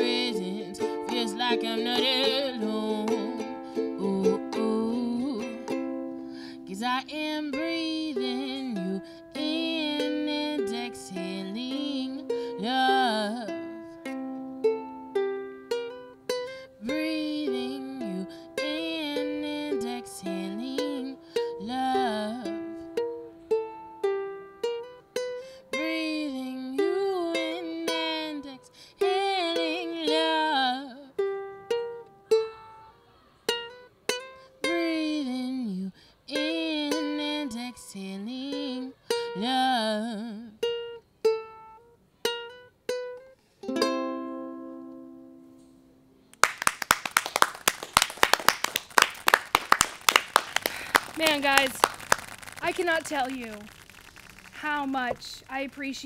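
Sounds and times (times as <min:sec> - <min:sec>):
woman singing: 0:00.0 - 0:05.8, 0:06.5 - 0:13.7, 0:16.8 - 0:22.6, 0:25.7 - 0:31.2, 0:34.6 - 0:40.6
ukulele chords: 0:00.0 - 0:53.8.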